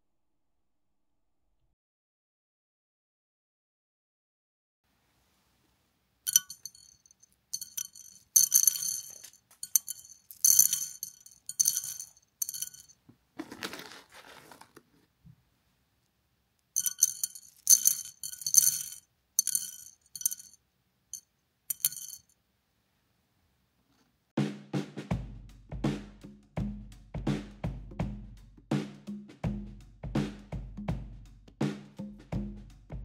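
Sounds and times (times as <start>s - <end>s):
beans clattering into a ceramic dish: 6.3s - 14.8s, 16.8s - 20.6s, 21.7s - 22.2s.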